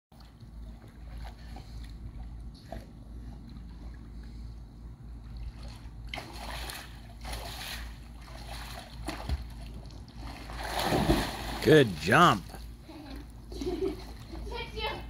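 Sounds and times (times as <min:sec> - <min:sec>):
steady low hum: 0:00.2 - 0:15.0
pool water splashed by hand: 0:05.2 - 0:12.8.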